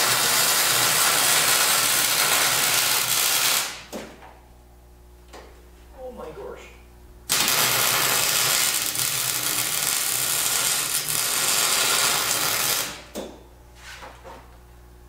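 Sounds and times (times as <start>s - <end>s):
welding arc crackling: 0.0s - 3.9s, 7.3s - 13.1s.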